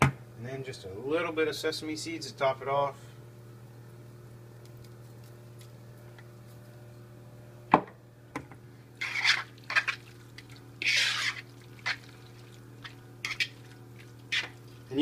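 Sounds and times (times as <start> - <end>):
hands squishing wet food: 9.0 - 14.9.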